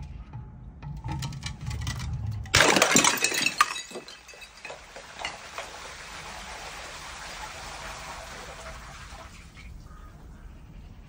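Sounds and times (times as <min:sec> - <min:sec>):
glass shards clinking down stairs: 0:01.0 - 0:05.7
glass bottle shattering: 0:02.5 - 0:05.7.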